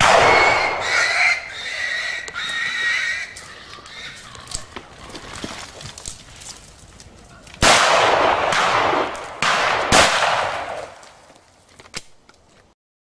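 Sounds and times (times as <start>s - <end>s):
gunshots: 0.0s - 1.2s, 7.6s - 11.0s.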